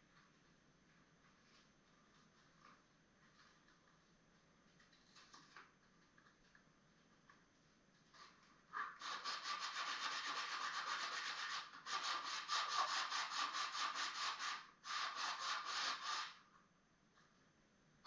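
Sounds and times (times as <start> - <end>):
sandpaper rasping on wood: 9.0 - 16.4.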